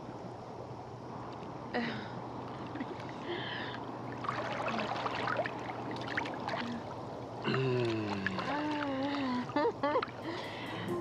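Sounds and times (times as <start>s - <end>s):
low steady hum: 0.0s - 11.0s
water bubbling and trickling: 2.4s - 10.6s
water splashes and drips: 2.4s - 10.6s.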